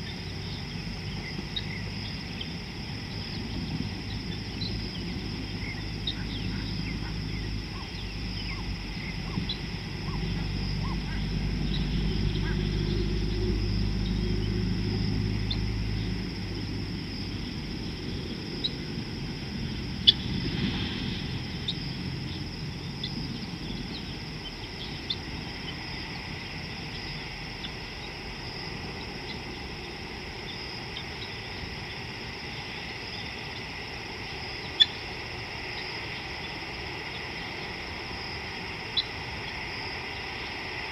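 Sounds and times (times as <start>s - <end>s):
insects chirring: 0.0s - 40.9s
low hum: 0.0s - 40.9s
bird chirps: 3.3s - 14.6s, 34.6s - 35.0s.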